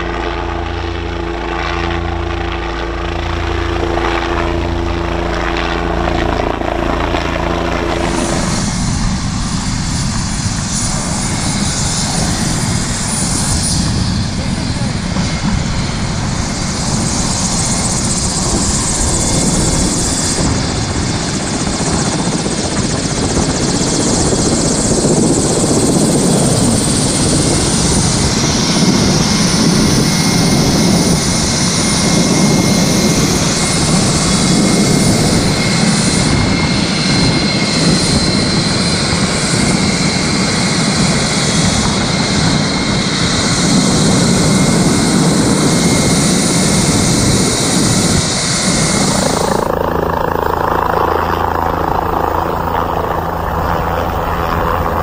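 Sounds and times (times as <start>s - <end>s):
helicopter rotor chop: 0.0s - 55.0s
helicopter turbine engine: 0.0s - 55.0s.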